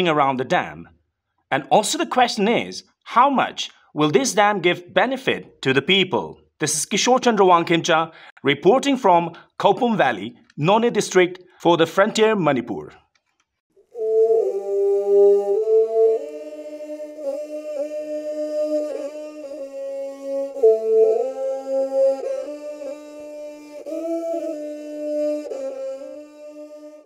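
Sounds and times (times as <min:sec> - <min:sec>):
slow background music: 0:13.9 - 0:27.0.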